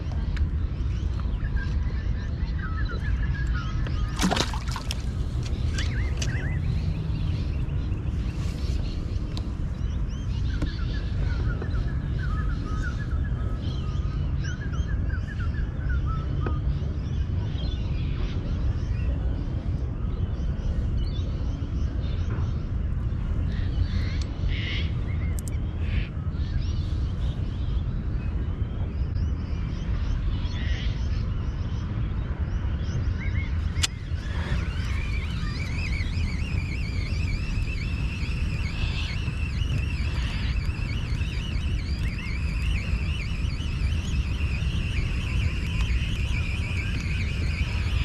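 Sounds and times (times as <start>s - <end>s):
birds calling: 0.0s - 16.6s, 32.7s - 48.0s
wind rumble on microphone: 0.0s - 48.0s.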